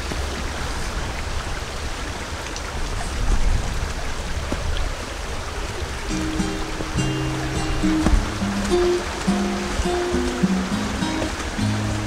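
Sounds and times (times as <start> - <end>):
stream water rushing: 0.0 - 12.0
wind rumble on microphone: 0.0 - 12.0
background music: 6.1 - 12.0.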